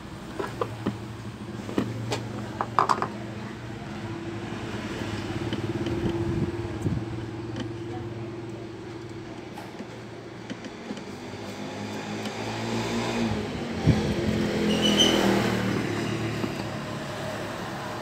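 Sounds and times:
clicks and knocks of handling: 0:00.3 - 0:03.2, 0:05.1 - 0:12.5, 0:16.3 - 0:16.9.

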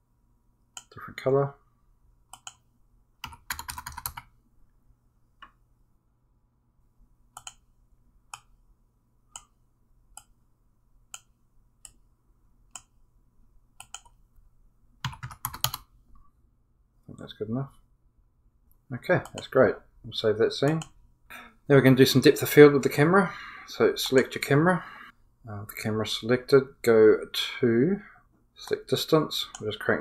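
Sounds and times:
keyboard typing: 0:02.3 - 0:02.6, 0:03.2 - 0:04.3, 0:07.4 - 0:07.7, 0:13.8 - 0:14.2, 0:15.0 - 0:15.9.

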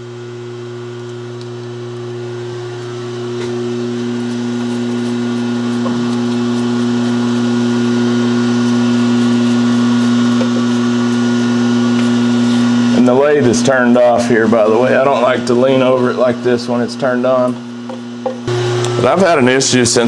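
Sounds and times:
motor humming: 0:00.0 - 0:20.0.

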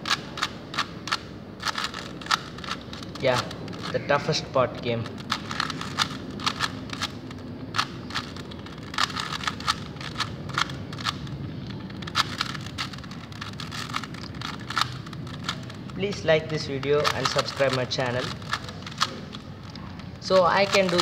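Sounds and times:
puzzle cube plastic clicks: 0:00.0 - 0:21.0.

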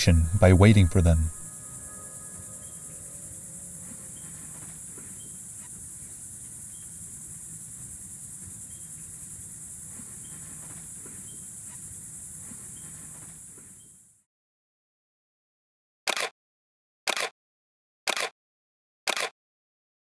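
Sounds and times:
insect chorus: 0:00.0 - 0:14.2.

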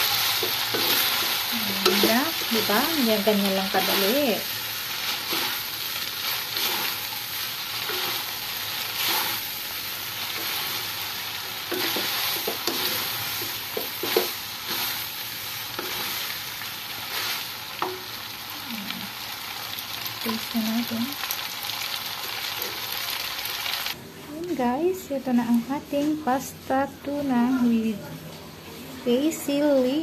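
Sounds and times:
spaghetti sizzling in a wok: 0:00.0 - 0:24.0
utensils scraping and knocking pan: 0:00.4 - 0:04.3, 0:11.7 - 0:15.0.

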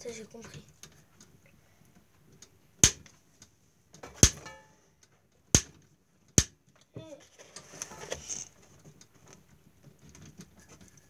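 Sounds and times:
sharp knocks: 0:02.8 - 0:03.1, 0:04.1 - 0:04.6, 0:05.6 - 0:05.8.

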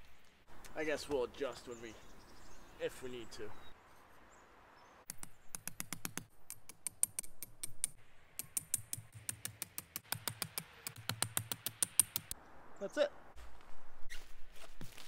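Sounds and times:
tent stakes crunching into snow: 0:13.4 - 0:15.0.

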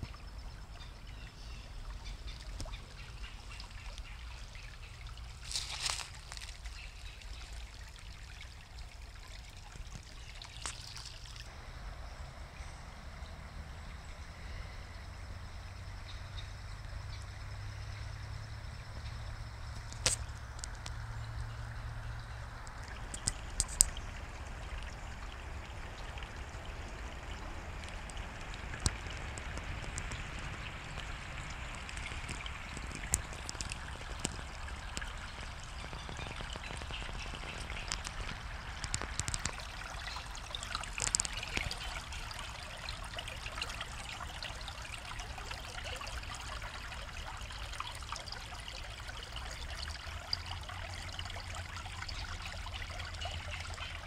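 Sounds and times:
stream trickling over rocks: 0:00.0 - 0:54.0.

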